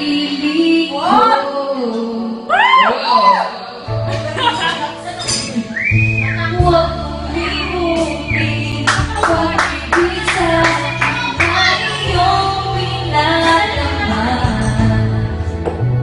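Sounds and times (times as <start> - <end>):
woman singing a ballad: 0.0 - 5.5, 6.4 - 15.7
backing track: 3.8 - 16.0.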